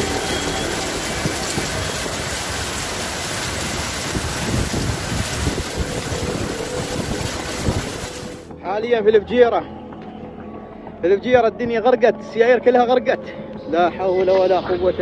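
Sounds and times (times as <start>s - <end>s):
cars wading through floodwater: 0.0s - 8.5s
heavy rain: 0.0s - 8.5s
wind buffeting microphone: 0.0s - 8.5s.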